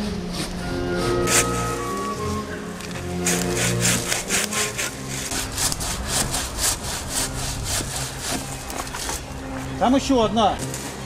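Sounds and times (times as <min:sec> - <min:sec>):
hand saw rasping through branch: 0:00.0 - 0:02.0, 0:03.1 - 0:09.3.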